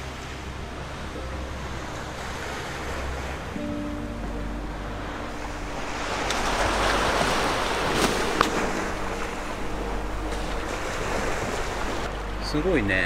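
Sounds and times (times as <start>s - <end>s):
small waves washing onto beach: 4.6s - 13.0s.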